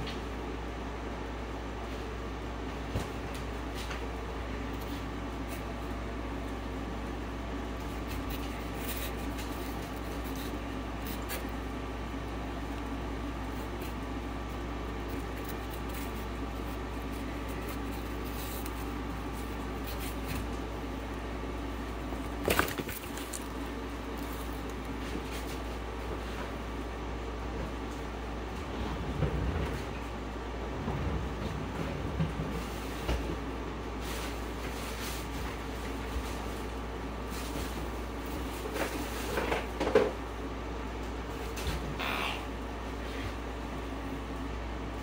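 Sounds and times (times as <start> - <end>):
steady background hum: 0.0 - 45.0
faint clicks and rustles: 2.9 - 26.7
handling noise: 6.8 - 25.7.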